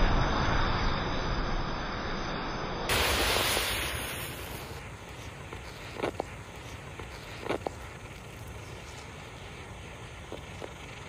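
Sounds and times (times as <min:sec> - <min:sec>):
match heads flaring roar: 0:02.9 - 0:07.9
burning hiss: 0:02.9 - 0:11.0.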